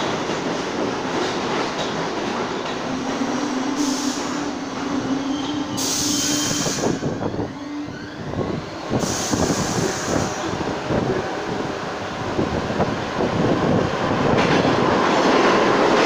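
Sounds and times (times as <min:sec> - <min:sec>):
subway train pulling into station: 0:00.0 - 0:16.0
hiss burst: 0:05.7 - 0:07.1, 0:09.0 - 0:10.4.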